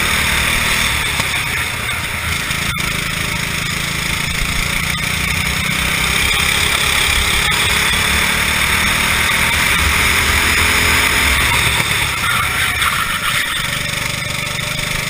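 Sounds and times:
kart engine revving: 0.0 - 15.0.

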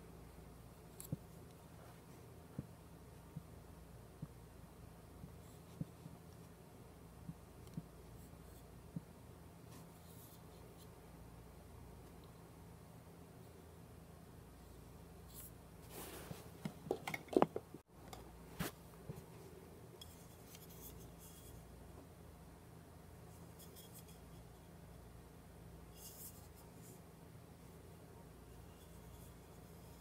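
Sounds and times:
faint steady hum: 0.0 - 30.0
bulb rubbing and scraping: 25.9 - 27.0.

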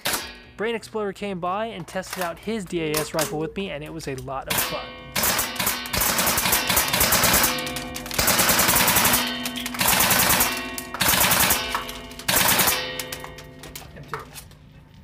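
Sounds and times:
airsoft rifles firing bursts: 4.5 - 13.2.

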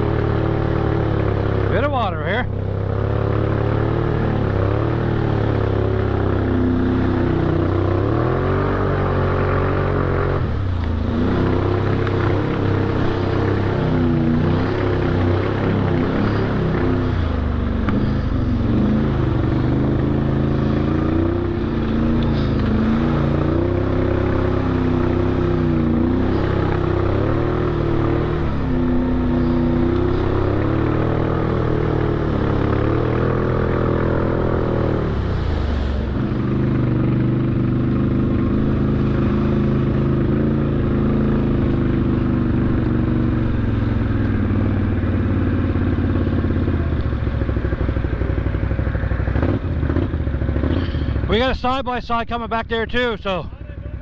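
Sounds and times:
atv engine revving: 0.0 - 54.0.

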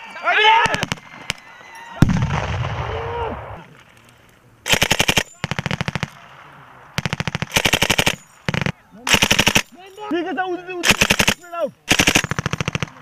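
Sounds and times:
machine gun automatic bursts: 4.7 - 6.1, 7.0 - 9.7, 10.8 - 13.0.

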